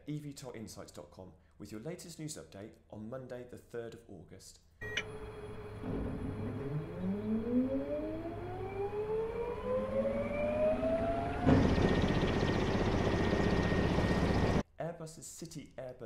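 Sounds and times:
electric motors whining: 5.0 - 14.6
propeller noise rush: 10.3 - 14.6.

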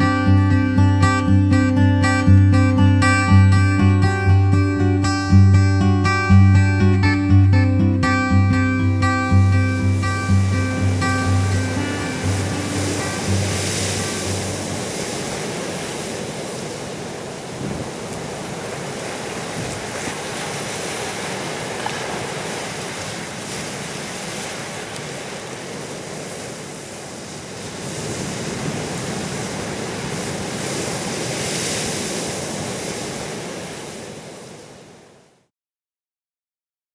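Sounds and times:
ocean surf breaking over rocks: 8.6 - 35.2.

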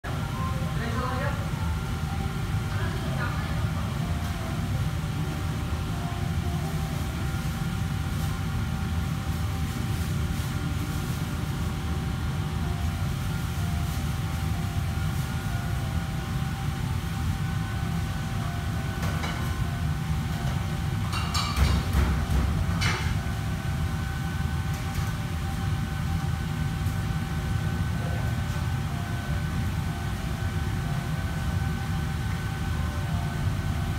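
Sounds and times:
kitchen ventilation drone: 0.0 - 33.9
faint steady whine: 0.1 - 21.2.

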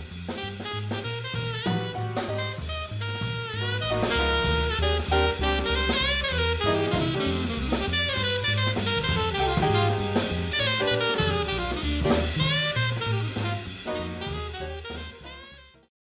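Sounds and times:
stepping bass notes: 0.0 - 15.8
drum kit: 0.0 - 15.9
jazz horn melody: 0.0 - 15.9.

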